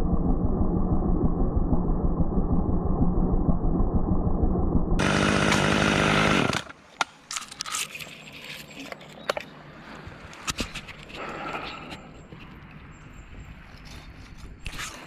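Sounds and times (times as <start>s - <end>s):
chainsaw engine running: 5.0s - 6.7s.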